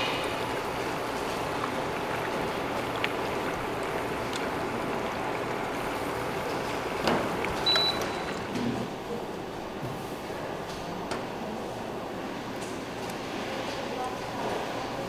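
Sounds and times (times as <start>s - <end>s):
high beep: 7.6s - 8.4s.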